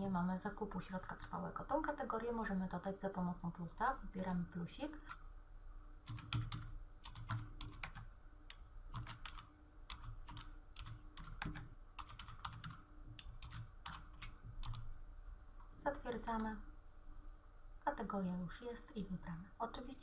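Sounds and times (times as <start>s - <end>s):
computer keyboard typing: 6.0s - 14.9s.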